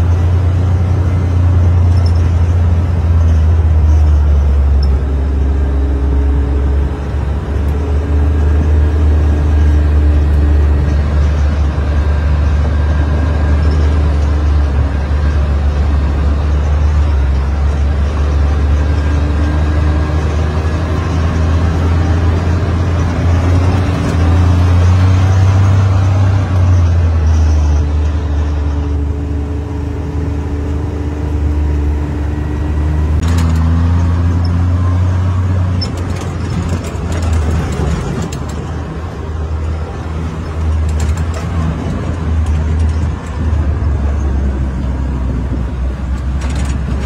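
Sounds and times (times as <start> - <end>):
utility vehicle engine running: 0.0 - 47.0.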